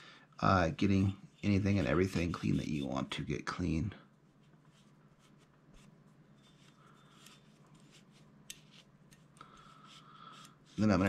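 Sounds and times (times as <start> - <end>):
cloth rubbing: 4.2 - 9.1.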